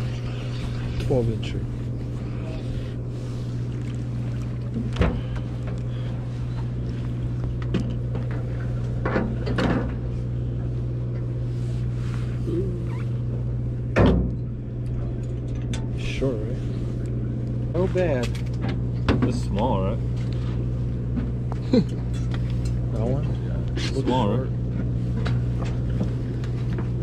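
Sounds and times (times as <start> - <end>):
boat engine drone: 0.0 - 27.0.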